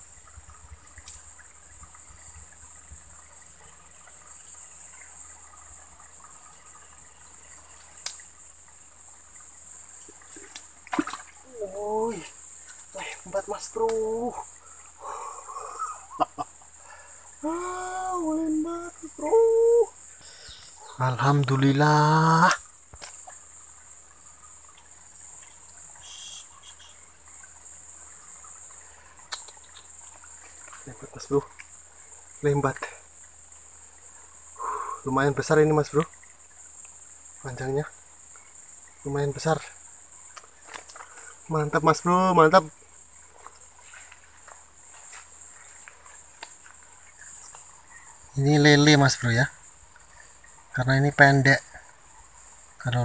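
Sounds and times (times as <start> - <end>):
faint water trickling: 0.0 - 53.0
high-pitched hiss: 0.0 - 53.0
insects droning: 0.0 - 53.0
faint clicks: 7.9 - 8.3, 28.6 - 30.8, 40.3 - 41.3, 45.8 - 47.7.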